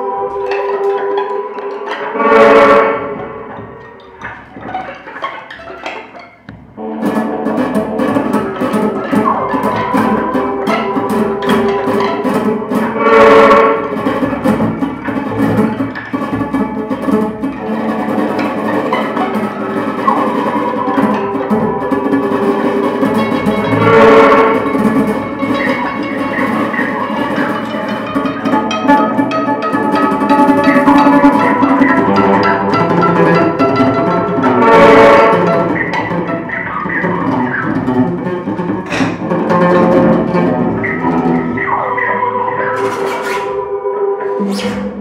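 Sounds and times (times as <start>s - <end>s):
sustained pitched tones: 0.0s - 45.0s.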